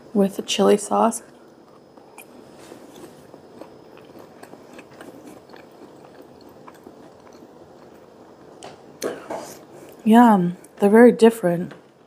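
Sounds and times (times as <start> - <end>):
person chewing with mouth clicks: 1.4 - 10.0.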